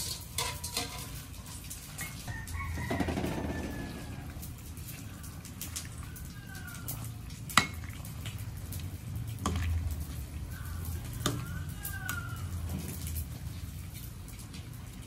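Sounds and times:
ladle clinking against pot: 0:00.0 - 0:01.3
ladle stirring in soup pot: 0:00.0 - 0:15.0.

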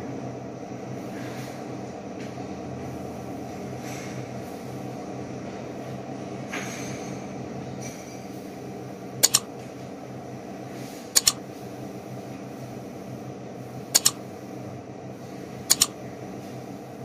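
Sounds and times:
double mouse clicks: 0:09.2 - 0:09.4, 0:11.2 - 0:11.4, 0:14.0 - 0:14.2, 0:15.7 - 0:15.9.

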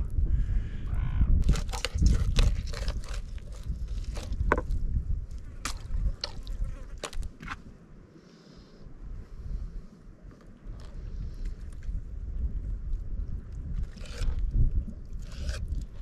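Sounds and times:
wind rumble on microphone: 0:00.0 - 0:08.0, 0:08.8 - 0:16.0
knife cutting on plastic board: 0:01.4 - 0:04.6.

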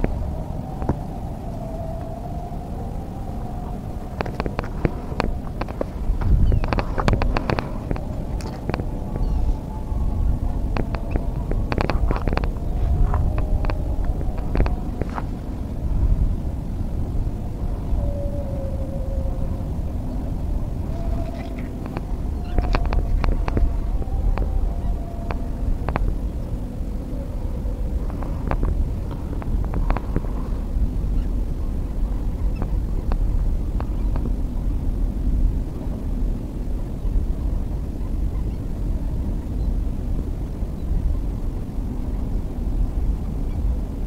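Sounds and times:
wind buffeting microphone: 0:00.0 - 0:44.0.

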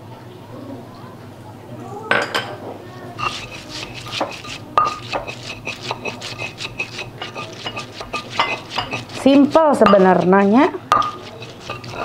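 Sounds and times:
pestle scraping in mortar: 0:03.2 - 0:12.0
stone pestle knocking in mortar: 0:03.2 - 0:12.0.

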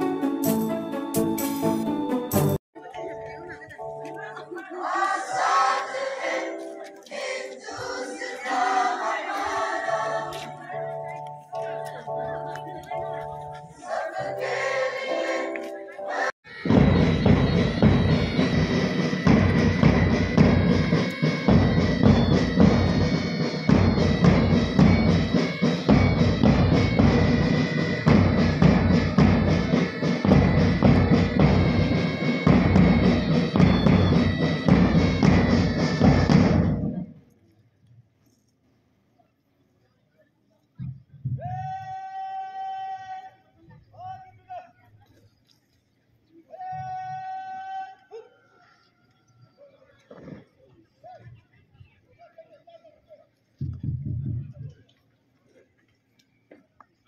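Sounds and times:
marching band playing: 0:00.0 - 0:02.6, 0:13.1 - 0:37.1
held musical accompaniment: 0:00.0 - 0:37.2
choir singing: 0:04.4 - 0:11.1, 0:13.1 - 0:23.2.

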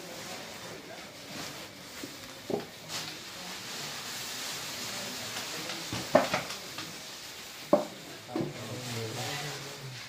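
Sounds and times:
dry tea leaves pouring and rustling: 0:00.0 - 0:10.0.

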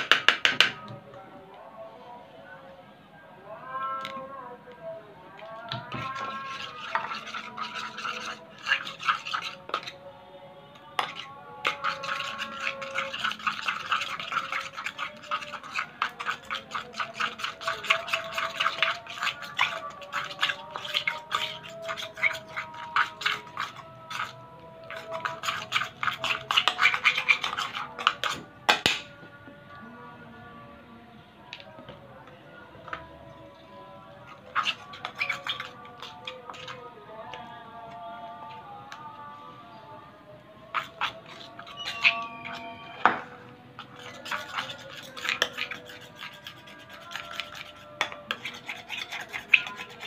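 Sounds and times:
background music: 0:00.0 - 0:50.0
spoon stirring sticky slime: 0:05.4 - 0:10.1, 0:10.7 - 0:29.0, 0:32.9 - 0:38.8, 0:40.6 - 0:50.0.

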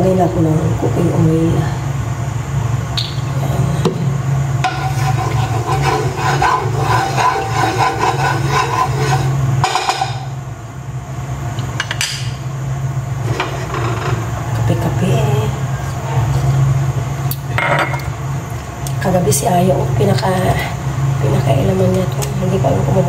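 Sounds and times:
low hum: 0:00.0 - 0:23.0
spatula scraping frying pan: 0:04.6 - 0:10.1.

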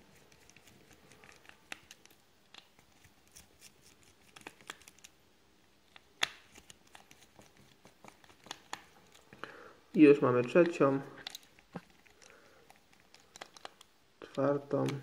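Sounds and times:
screwdriver clicks and scratches: 0:11.2 - 0:13.9.

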